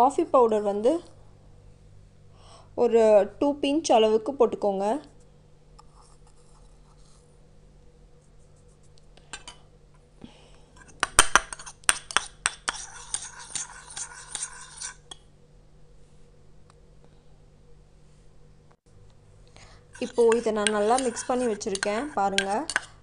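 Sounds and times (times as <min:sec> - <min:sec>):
spoon clinking on ceramic bowl: 0:20.0 - 0:22.9.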